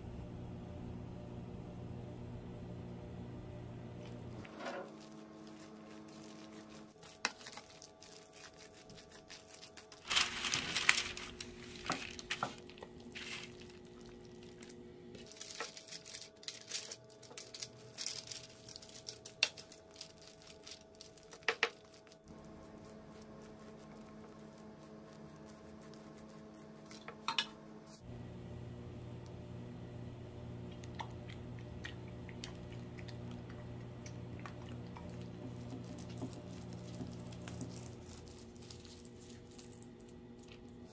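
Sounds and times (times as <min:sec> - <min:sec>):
spatula scraping bowl: 0:04.4 - 0:07.6
wet batter squishing: 0:04.4 - 0:14.8, 0:30.7 - 0:40.9
paper crinkling: 0:04.4 - 0:27.1, 0:34.8 - 0:40.9.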